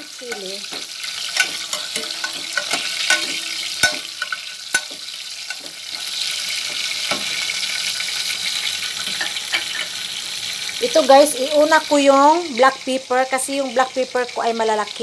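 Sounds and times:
vegetables sizzling in oil: 0.0s - 15.0s
metal spatula scraping pan: 0.1s - 7.8s, 9.0s - 10.1s.

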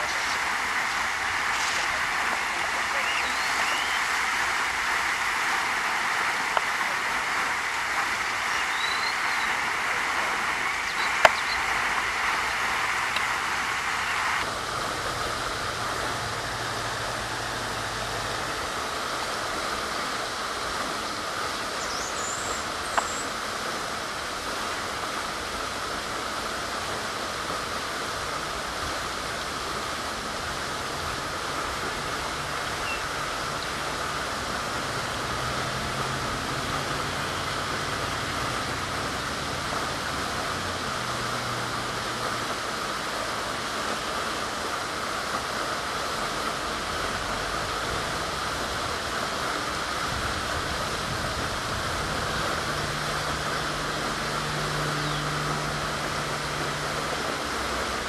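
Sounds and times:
steady rushing noise: 0.0s - 58.0s
faint high bird chirp: 3.0s - 4.1s, 8.5s - 9.6s, 10.8s - 11.7s, 55.0s - 55.3s.

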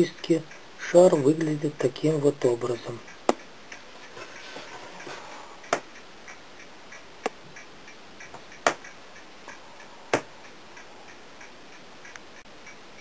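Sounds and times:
faint rhythmic ticking: 0.0s - 13.0s.

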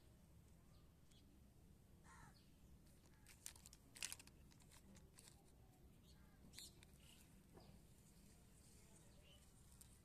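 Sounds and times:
faint bird call: 2.0s - 2.5s
plastic toys clicking and crinkling: 2.8s - 5.6s, 6.5s - 7.2s, 9.6s - 10.0s.

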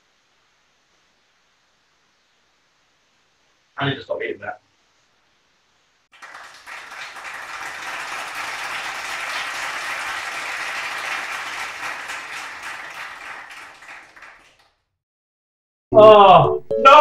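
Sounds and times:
many hands clapping: 6.1s - 14.9s.

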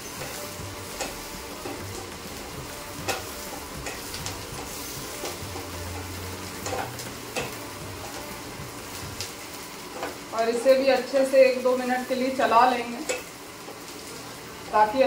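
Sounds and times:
food sizzling in oil: 0.0s - 15.0s
spatula clicking against pan: 1.0s - 2.1s, 3.0s - 8.2s.

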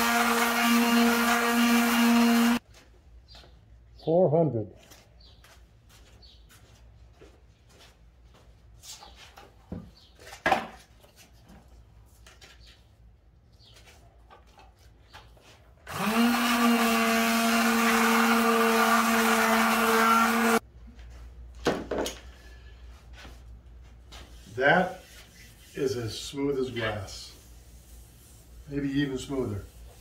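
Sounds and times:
electric sander humming: 0.0s - 2.6s, 15.9s - 20.6s.

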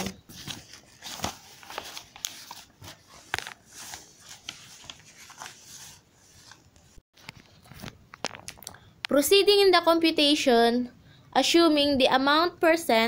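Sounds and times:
soft rustling: 0.3s - 8.5s.

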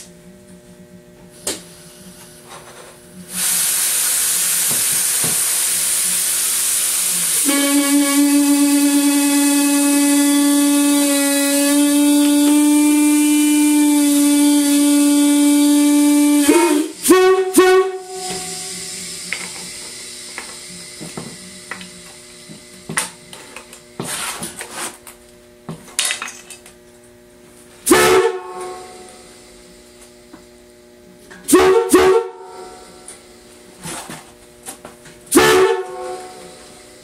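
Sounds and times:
locomotive air horn: 7.0s - 19.1s, 27.8s - 29.4s, 31.5s - 33.1s, 35.3s - 36.9s.

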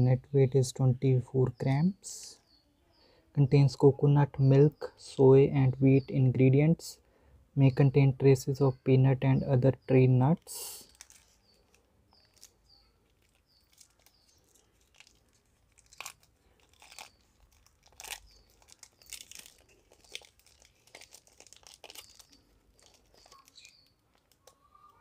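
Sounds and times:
plastic wrapper crinkling and tearing: 10.8s - 25.0s.

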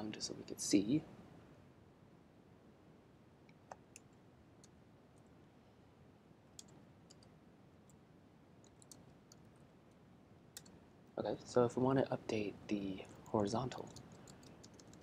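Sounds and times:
computer keyboard clicks: 6.6s - 7.3s, 8.6s - 9.5s, 13.8s - 15.0s.

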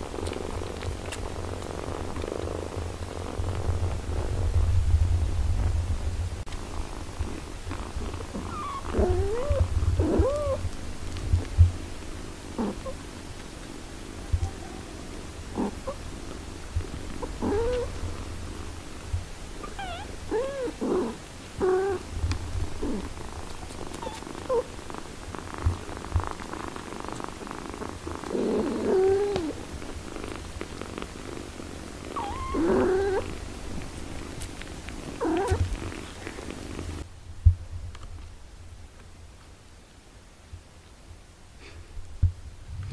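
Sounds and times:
cat purring: 0.0s - 37.1s
kittens mewing: 8.3s - 10.6s, 17.2s - 17.9s, 19.6s - 22.1s, 22.8s - 24.7s, 32.1s - 33.4s, 34.4s - 36.8s
cat meowing: 19.6s - 20.8s, 24.0s - 24.6s, 32.2s - 33.3s.

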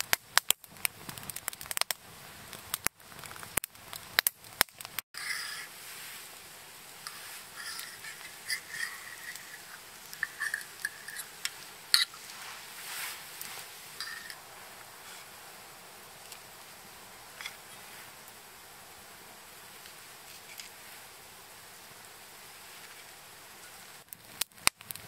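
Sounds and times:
fork scraping a skillet: 5.2s - 6.3s, 7.0s - 14.4s.

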